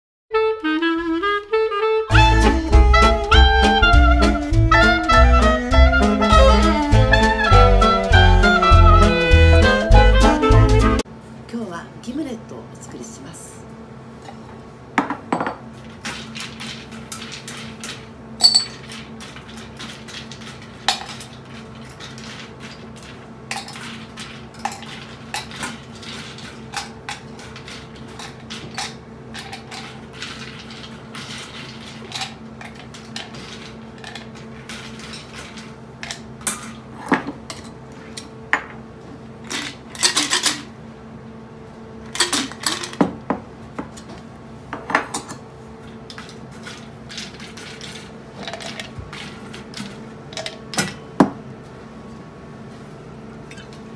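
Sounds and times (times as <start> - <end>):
ice and tools clinking on glass: 18.4 - 19.0.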